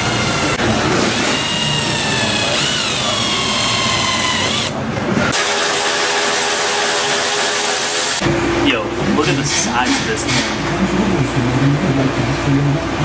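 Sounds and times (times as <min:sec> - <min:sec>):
power drill boring through metal: 0:00.0 - 0:04.8, 0:05.4 - 0:08.2
steady hum: 0:04.6 - 0:13.0.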